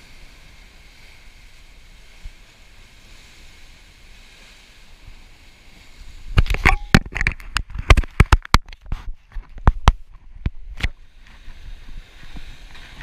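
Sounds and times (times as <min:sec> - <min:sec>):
surf washing against rocks: 0:00.0 - 0:13.0
wind on microphone: 0:00.0 - 0:13.0
camera handling knocks and rubbing: 0:06.4 - 0:10.9.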